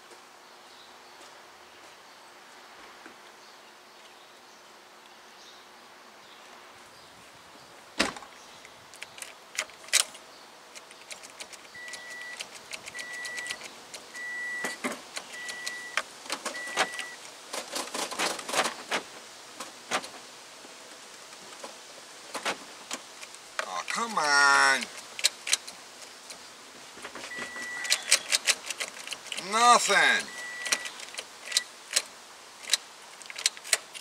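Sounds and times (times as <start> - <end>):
car warning chime beeps: 11.8 - 13.6, 14.2 - 17.2, 27.3 - 28.1, 30.2 - 30.9.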